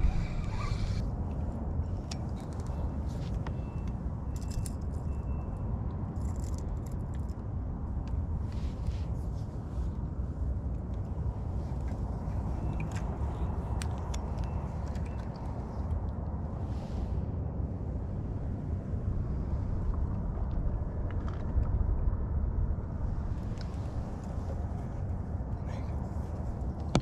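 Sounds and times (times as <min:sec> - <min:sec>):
fabric rubbing on microphone: 0:00.0 - 0:01.0.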